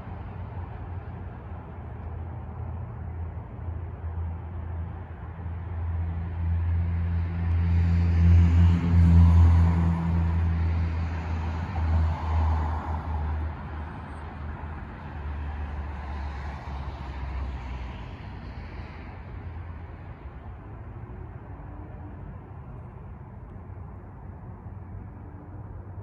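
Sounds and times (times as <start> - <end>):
car passing: 6.2 - 17.9.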